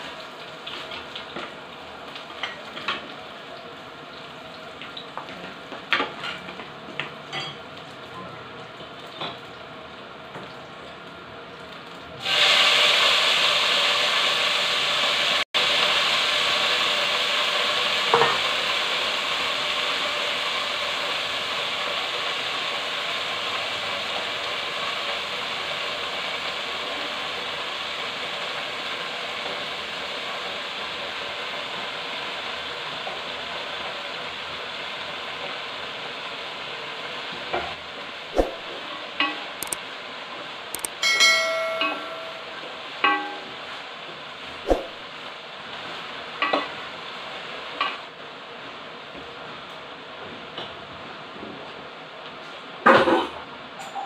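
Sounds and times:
greens sizzling in hot oil: 0:00.0 - 0:50.2.

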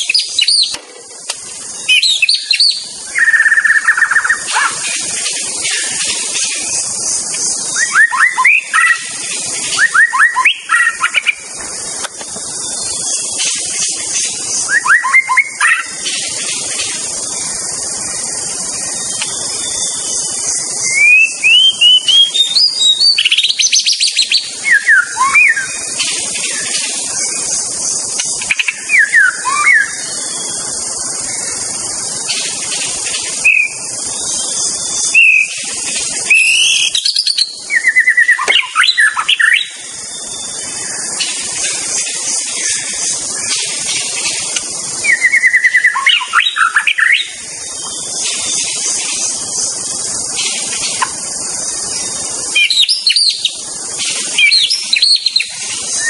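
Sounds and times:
bird singing whistles and trills: 0:00.0 - 0:56.0
steady high hiss: 0:00.0 - 0:56.0.

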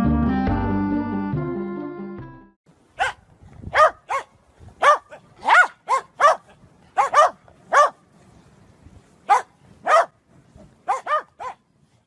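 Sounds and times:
dog yappy barking: 0:03.0 - 0:08.0, 0:09.3 - 0:10.2, 0:10.8 - 0:11.6.

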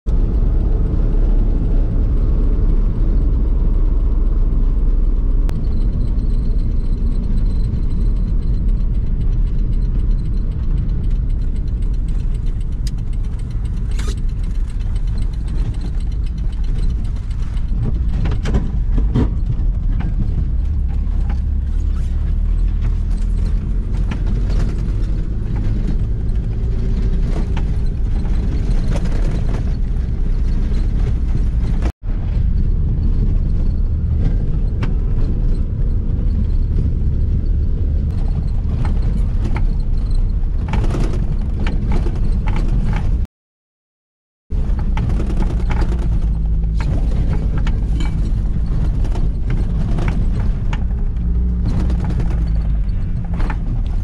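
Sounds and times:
van engine and road drone: 0:00.0 - 0:43.3, 0:44.5 - 0:54.0
sharp knocks and rattles: 0:00.4 - 0:43.3, 0:44.5 - 0:54.0.

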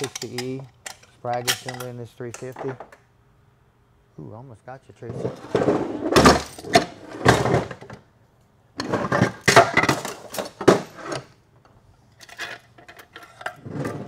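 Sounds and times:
metal parts clanking on workbench: 0:00.0 - 0:02.9, 0:08.8 - 0:11.3.

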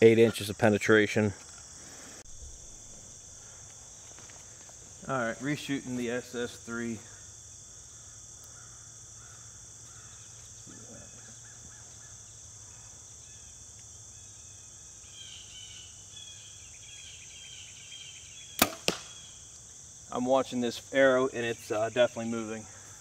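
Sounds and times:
insects chirping: 0:00.0 - 0:23.0.

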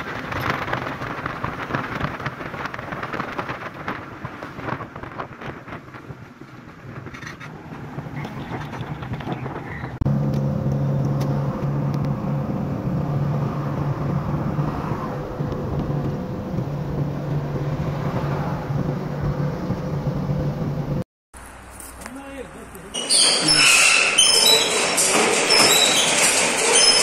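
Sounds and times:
road and wind noise: 0:00.0 - 0:27.0
low engine drone: 0:10.0 - 0:21.7.

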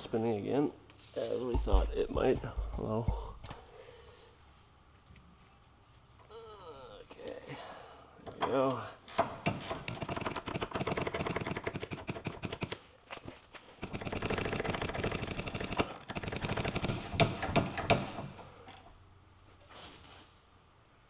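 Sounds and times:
ratcheting wrench clicking: 0:09.1 - 0:12.8, 0:13.8 - 0:18.8.

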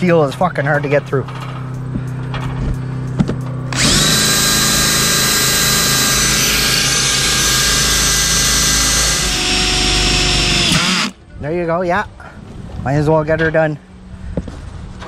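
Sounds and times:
cordless drill boring through steel: 0:03.7 - 0:11.2.

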